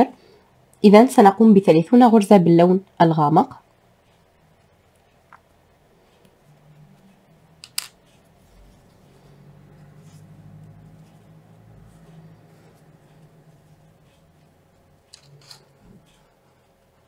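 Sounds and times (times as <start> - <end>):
faint low hum: 0.0 - 17.0
crochet hook working yarn: 3.7 - 17.0.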